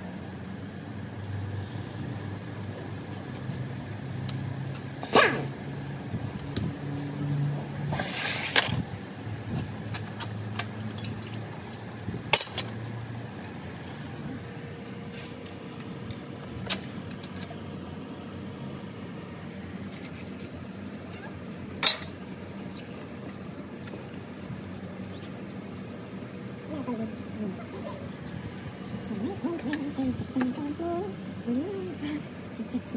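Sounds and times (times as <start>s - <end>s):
low steady hum: 0.0s - 32.9s.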